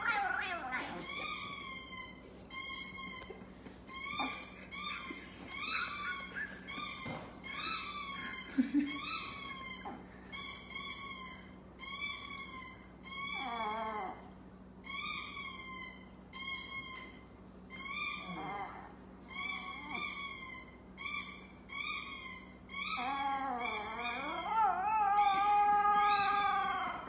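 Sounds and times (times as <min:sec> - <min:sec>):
dog howling: 0:00.0 - 0:01.4, 0:22.9 - 0:27.0.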